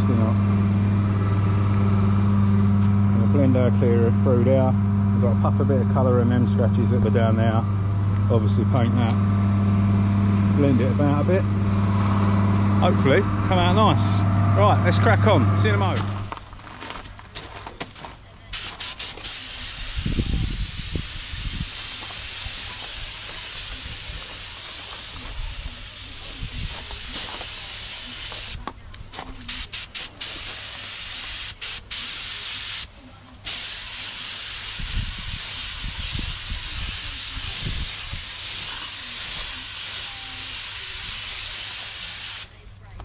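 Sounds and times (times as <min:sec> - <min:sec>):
paint spray gun hissing: 0:18.5 - 0:28.6, 0:29.5 - 0:32.9, 0:33.5 - 0:42.6.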